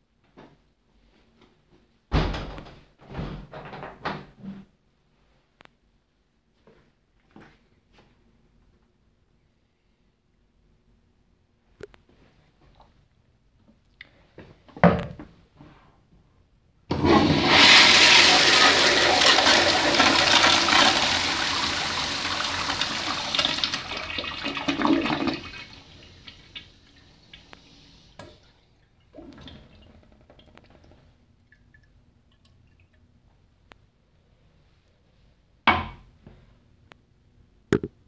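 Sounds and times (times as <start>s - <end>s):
toilet water rushing: 16.9s - 27.5s, 29.1s - 30.9s.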